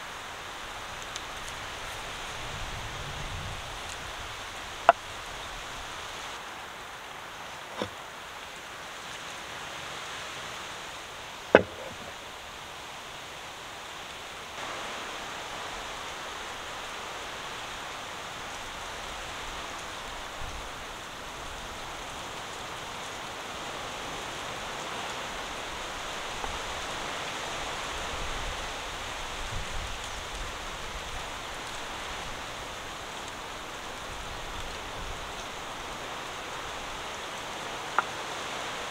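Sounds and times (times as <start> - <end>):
outdoor ambience hiss: 0.0 - 38.9
sharp loud knock: 11.6 - 12.1.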